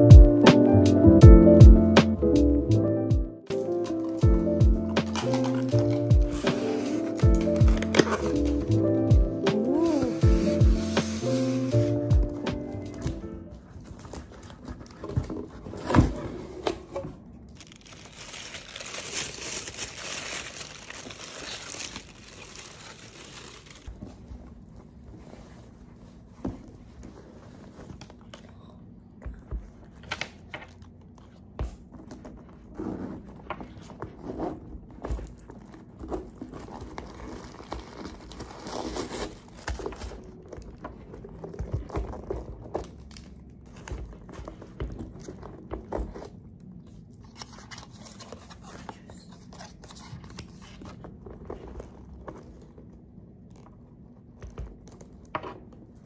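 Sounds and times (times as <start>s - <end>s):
cloth bag and wrapping rustling: 3.6s - 16.0s, 17.5s - 28.2s, 32.3s - 46.4s.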